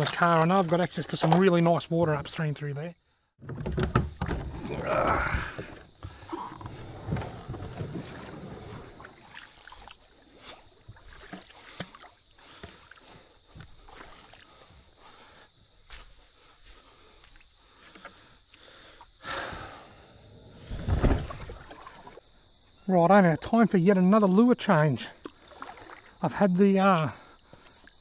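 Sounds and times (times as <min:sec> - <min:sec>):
kayak scraping against log: 0:05.4 - 0:09.6.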